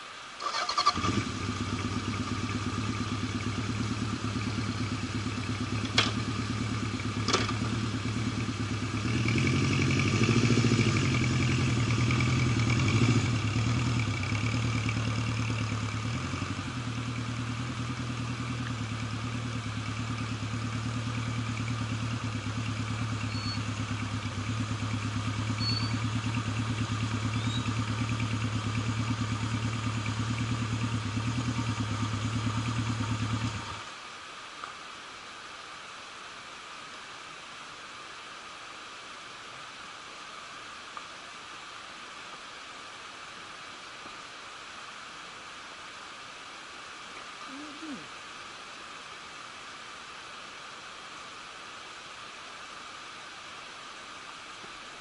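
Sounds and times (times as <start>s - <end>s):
motorcycle engine starting and idling: 0.4s - 33.9s.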